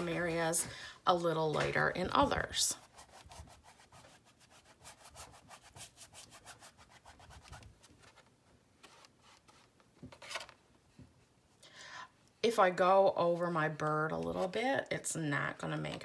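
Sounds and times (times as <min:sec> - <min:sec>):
paintbrush scrubbing on canvas: 0:02.7 - 0:08.1.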